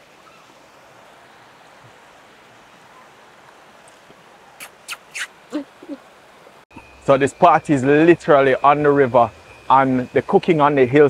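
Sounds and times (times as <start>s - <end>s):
river water rushing: 0.0s - 6.6s
mouth sucking sounds: 4.6s - 6.0s.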